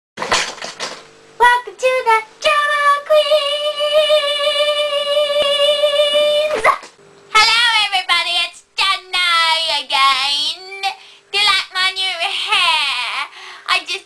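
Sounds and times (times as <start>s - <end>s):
girl singing jingle: 1.4s - 6.6s.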